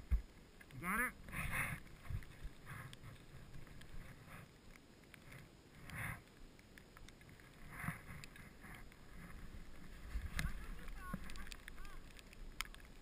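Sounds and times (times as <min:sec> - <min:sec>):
low hiss: 0:00.0 - 0:13.0
skis sliding through snow: 0:07.4 - 0:13.0.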